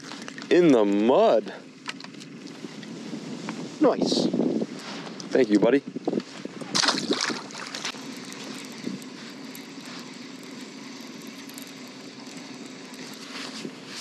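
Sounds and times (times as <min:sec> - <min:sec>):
low engine drone: 0:00.0 - 0:14.0
fish splashing into water: 0:06.7 - 0:08.0.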